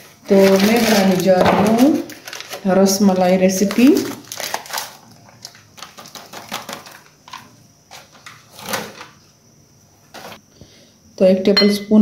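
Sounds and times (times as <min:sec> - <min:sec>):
foil packet crinkling: 0:00.0 - 0:09.2.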